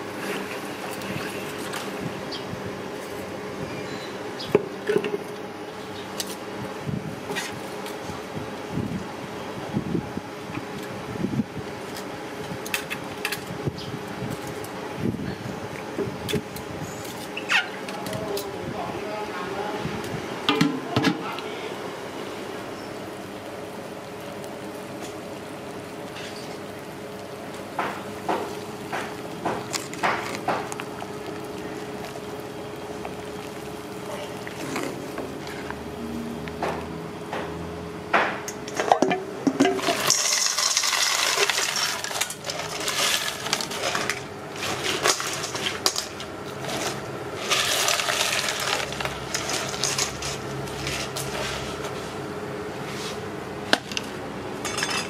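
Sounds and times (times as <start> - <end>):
metal utensils clinking on pot: 54.6 - 55.0.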